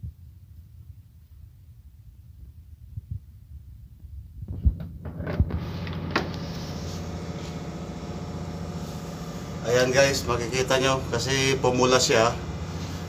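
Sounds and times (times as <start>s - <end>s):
machinery hum: 5.0s - 13.0s.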